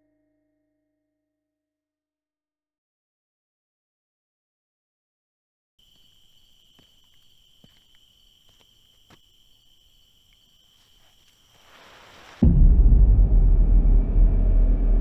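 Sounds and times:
high-pitched insect trill: 0:05.8 - 0:12.2
hiss: 0:11.5 - 0:12.4.

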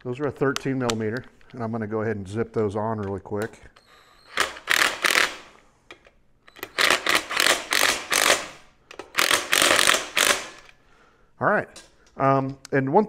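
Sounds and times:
ratchet wrench clicking: 0:06.6 - 0:08.5, 0:09.2 - 0:10.7.

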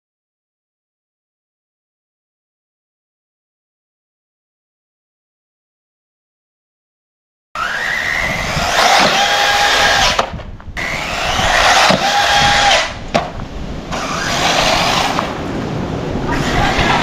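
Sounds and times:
electric motor whining: 0:07.6 - 0:15.4.

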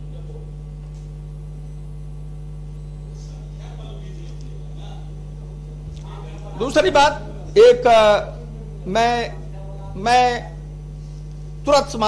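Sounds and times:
electrical mains hum: 0:00.0 - 0:12.0
faint voices murmuring: 0:03.2 - 0:07.6.

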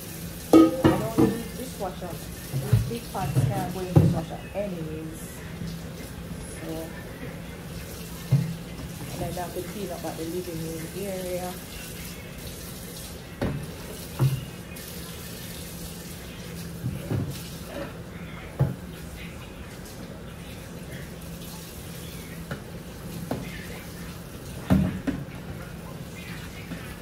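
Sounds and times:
tap running into sink: 0:00.5 - 0:01.6, 0:02.4 - 0:04.3, 0:08.2 - 0:09.3, 0:13.4 - 0:14.5, 0:24.6 - 0:25.5
pots clunking against sink: 0:00.5 - 0:01.8, 0:02.4 - 0:04.4, 0:13.4 - 0:14.5, 0:24.6 - 0:25.6.

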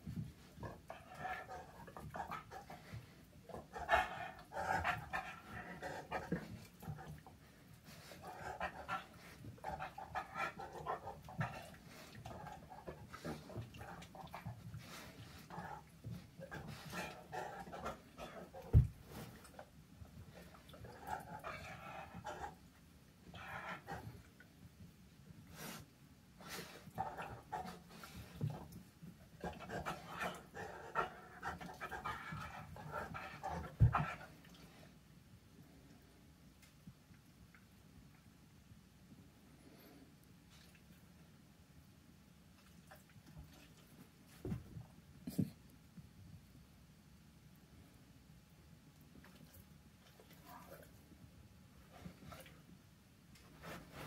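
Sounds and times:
dogs panting: 0:00.1 - 0:19.6, 0:29.4 - 0:34.6.

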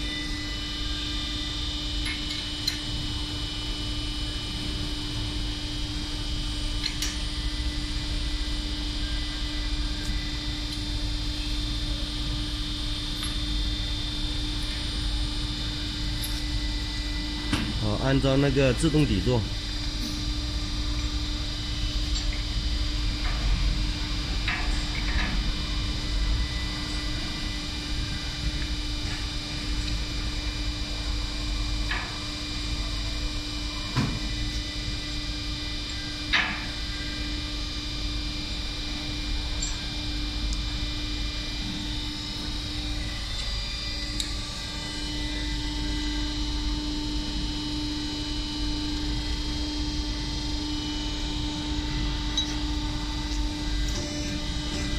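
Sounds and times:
press machine humming: 0:48.9 - 0:54.9.

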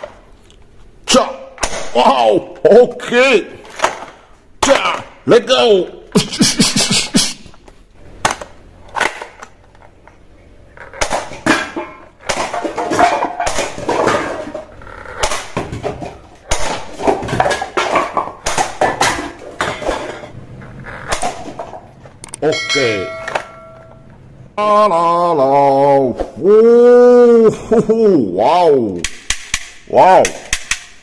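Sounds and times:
hard objects clattering and knocking: 0:03.6 - 0:05.2, 0:07.5 - 0:24.3.

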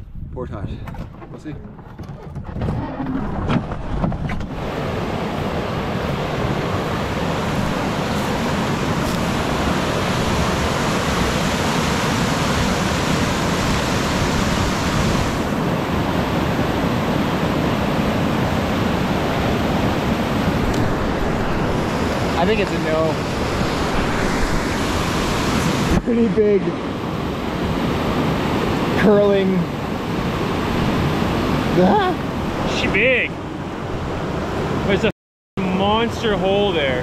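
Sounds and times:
water rushing over rapids: 0:04.5 - 0:33.3.

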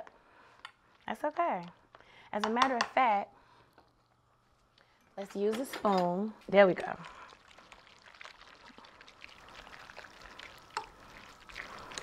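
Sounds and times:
spoon stirring wet food: 0:06.0 - 0:12.0.

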